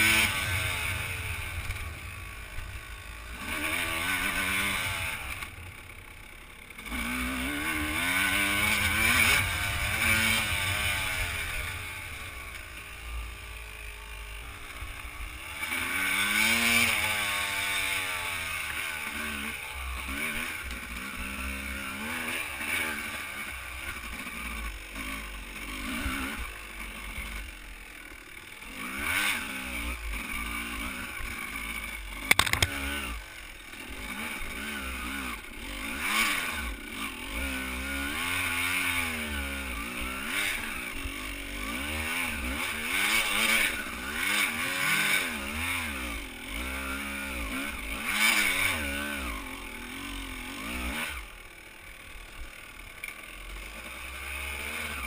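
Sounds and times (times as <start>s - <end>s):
dirt bike engine revving: 0.0s - 55.0s
sharp clatter: 31.8s - 33.3s.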